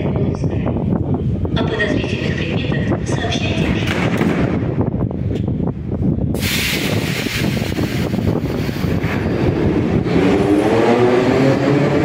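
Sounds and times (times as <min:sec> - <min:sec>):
train rumble: 0:00.0 - 0:12.0
air hiss: 0:06.4 - 0:08.8.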